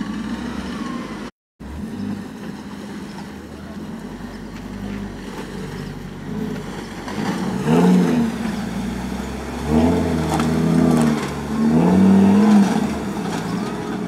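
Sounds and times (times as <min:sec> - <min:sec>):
truck engine revving: 0:00.0 - 0:14.0.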